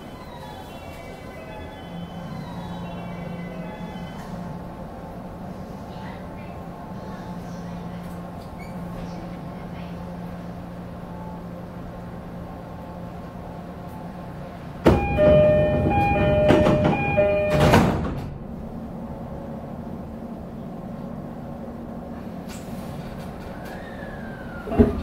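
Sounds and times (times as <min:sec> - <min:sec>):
train steady hum: 0:00.0 - 0:25.0
sliding doors shutting with thud: 0:14.8 - 0:18.4
two-tone door chime: 0:14.9 - 0:18.0.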